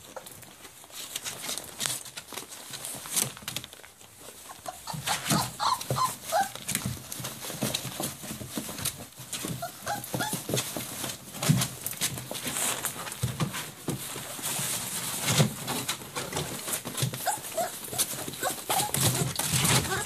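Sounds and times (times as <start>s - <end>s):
paper towels rustling: 0.0s - 20.0s
puppies whimpering: 4.3s - 7.6s, 9.4s - 11.1s, 17.1s - 20.0s.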